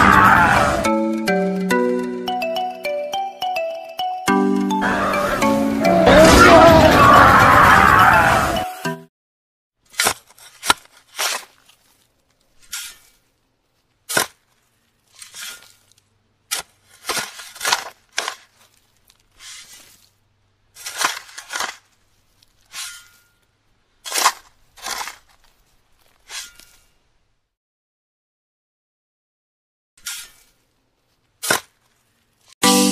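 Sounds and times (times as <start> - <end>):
metal shovel scraping sand: 9.9 - 13.3, 15.1 - 20.2, 20.8 - 27.0, 30.0 - 30.7.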